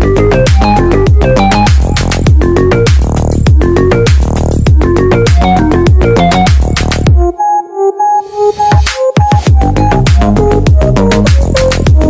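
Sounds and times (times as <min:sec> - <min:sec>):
heavy dance beat and bass: 0:00.0 - 0:12.0
held synth notes: 0:05.0 - 0:12.0.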